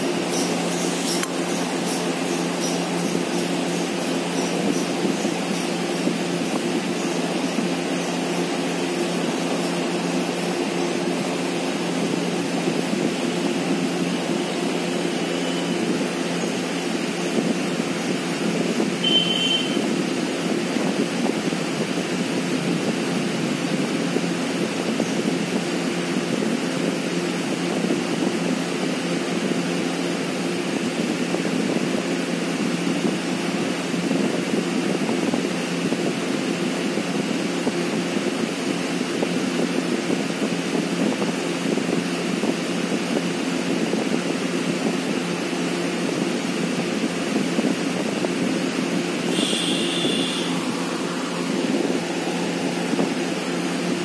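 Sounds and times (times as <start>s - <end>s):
mechanical drone: 0.0s - 27.0s, 47.7s - 54.0s
brief high-pitched tone: 49.3s - 50.6s.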